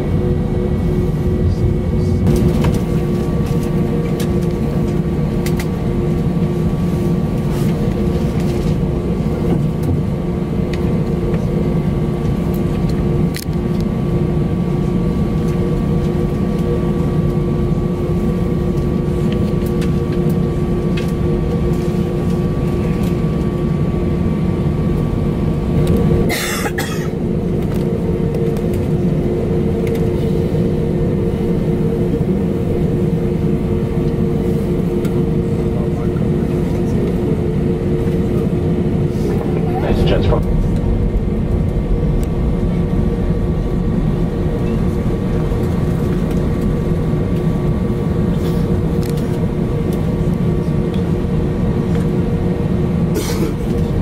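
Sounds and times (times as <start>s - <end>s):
high whine: 0.0s - 6.8s, 23.9s - 53.0s
jet engines idling: 0.0s - 54.0s
steady tones: 38.8s - 47.1s.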